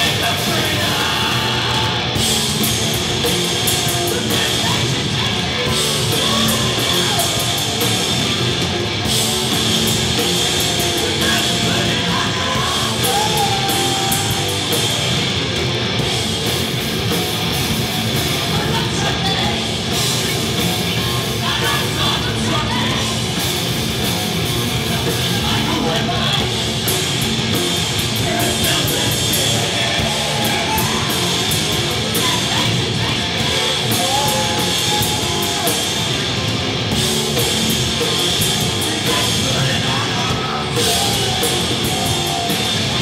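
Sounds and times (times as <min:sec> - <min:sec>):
distorted bass guitar: 0:00.0 - 0:43.0
drums with cymbal hits: 0:00.0 - 0:43.0.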